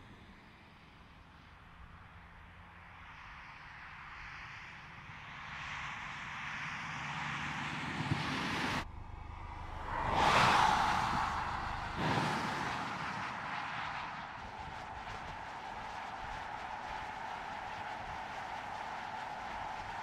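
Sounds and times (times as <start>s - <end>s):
car tyre and wind noise: 0.0s - 20.0s
car pass-by whoosh: 5.5s - 20.0s.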